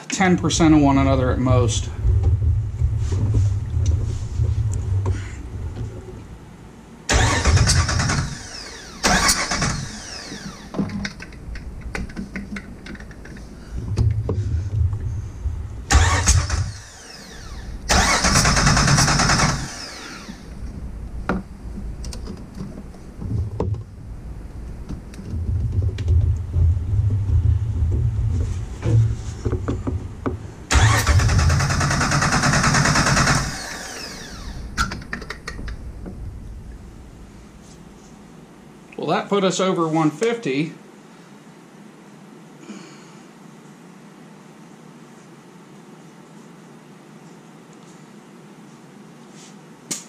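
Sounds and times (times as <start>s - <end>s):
loud hissing bursts: 7.1s - 10.7s, 13.3s - 21.3s, 30.7s - 36.0s
engine starter cranking: 7.1s - 13.5s, 15.9s - 20.6s, 30.7s - 35.9s.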